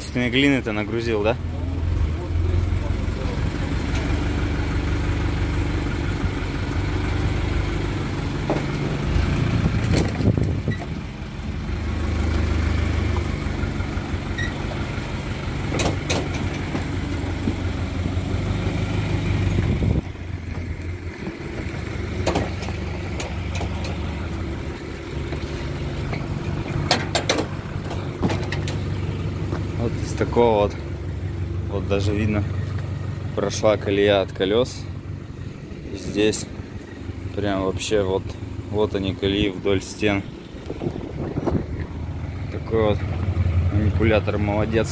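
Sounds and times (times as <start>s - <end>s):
truck engine running: 0.0s - 44.9s
sharp metallic knocks: 15.7s - 17.6s, 26.1s - 28.9s.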